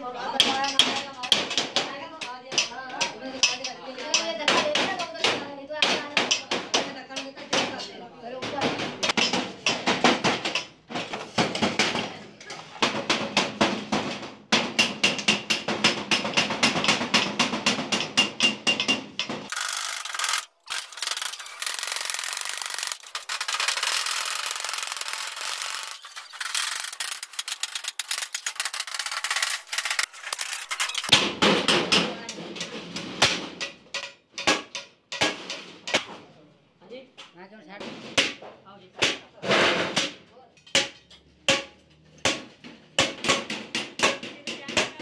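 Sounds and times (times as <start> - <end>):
hammer tapping sheet metal: 12.8 - 19.5.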